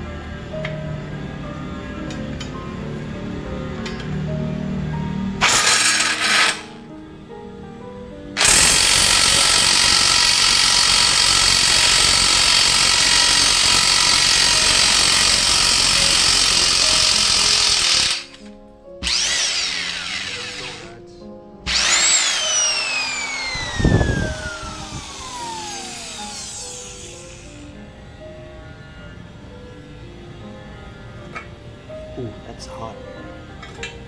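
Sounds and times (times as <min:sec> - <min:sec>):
impact wrench hammering: 0:05.4 - 0:06.8, 0:08.4 - 0:18.4
motor whine: 0:19.0 - 0:20.9, 0:21.7 - 0:27.8.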